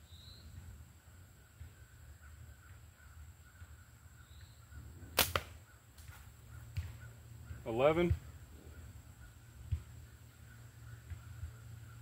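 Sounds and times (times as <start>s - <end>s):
slingshot bands cracking: 5.2s - 5.6s.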